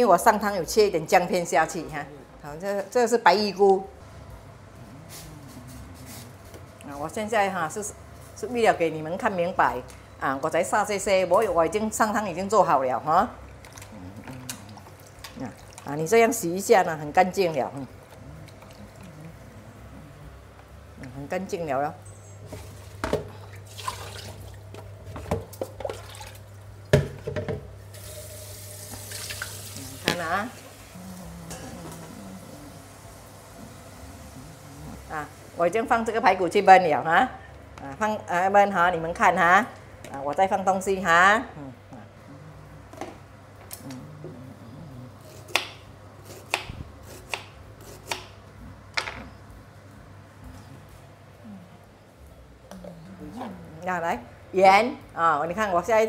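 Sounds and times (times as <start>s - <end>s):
water splashing in a sink: 23.5s - 27.2s, 27.9s - 30.8s.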